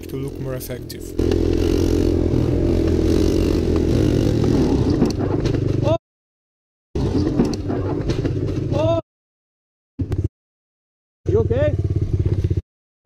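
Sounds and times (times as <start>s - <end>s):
quad engines running hard: 0.0s - 5.8s.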